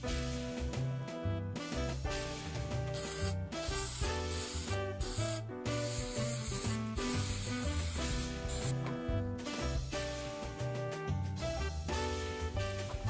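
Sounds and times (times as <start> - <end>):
music with bass beat: 0.0 - 13.0
aerosol can spraying: 2.9 - 8.8.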